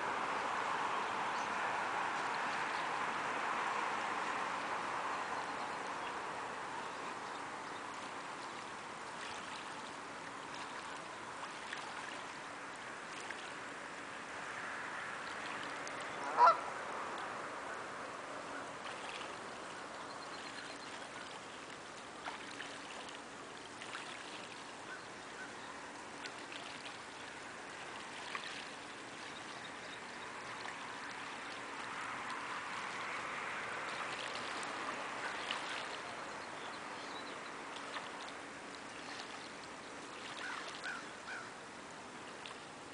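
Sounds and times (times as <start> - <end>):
small water splashes: 0.0 - 42.9
lapping water: 7.1 - 13.8, 18.5 - 42.9
goose honking: 16.2 - 16.6.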